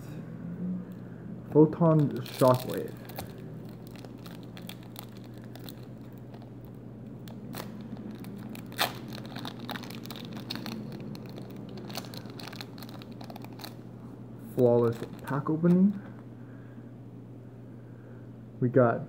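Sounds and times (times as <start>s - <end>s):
foil pack tearing and crinkling: 2.0s - 6.6s, 7.3s - 13.8s, 14.7s - 16.0s.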